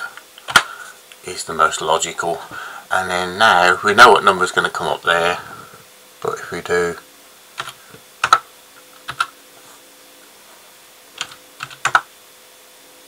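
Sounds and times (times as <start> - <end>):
keyboard typing: 7.6 - 8.4, 9.0 - 9.3, 11.2 - 12.1.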